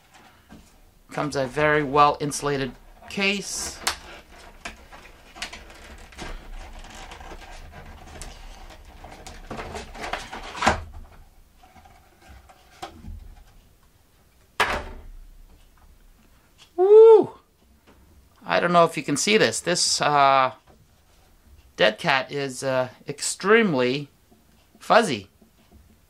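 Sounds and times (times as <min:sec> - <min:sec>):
plastic snapping: 0:03.8 - 0:07.6.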